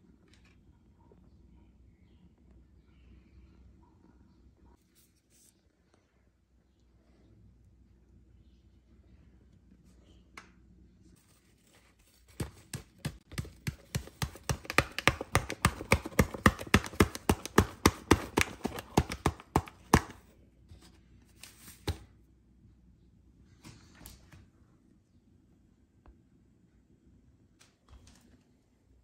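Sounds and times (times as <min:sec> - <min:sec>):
paper packet crackling and tapping: 0:12.1 - 0:20.3.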